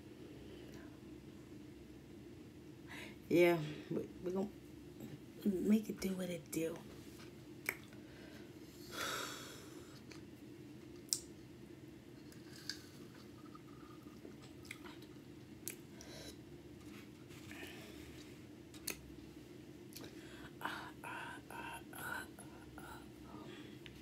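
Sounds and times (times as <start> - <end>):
steady low hum: 0.0 - 24.0
lip smacks and clicks: 7.6 - 8.0, 11.0 - 11.3, 14.6 - 15.8, 18.7 - 19.0.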